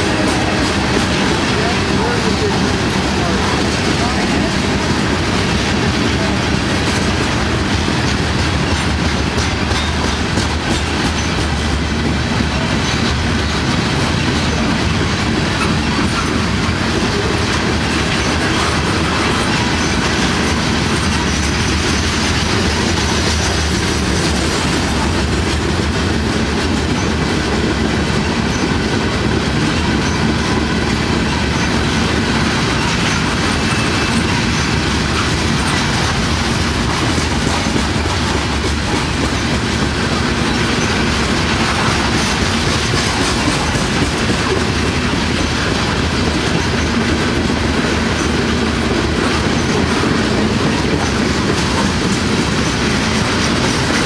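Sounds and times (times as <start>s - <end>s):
train wheels rumbling on rail: 0.0s - 54.0s
wheels clacking over rail joints: 0.0s - 54.0s.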